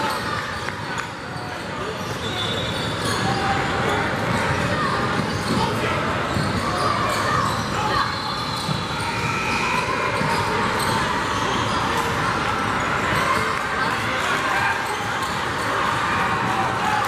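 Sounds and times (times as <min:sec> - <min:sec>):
hubbub of voices: 0:00.0 - 0:17.0
basketballs bouncing on court: 0:04.1 - 0:07.7, 0:08.4 - 0:11.0.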